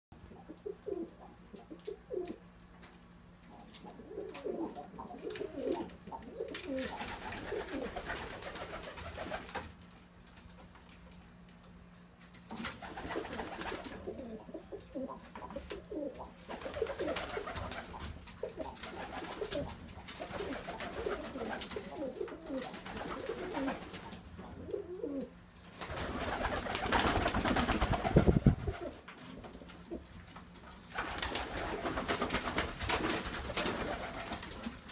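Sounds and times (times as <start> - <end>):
pigeons cooing: 0.3 - 2.5, 3.5 - 9.4, 12.8 - 25.4.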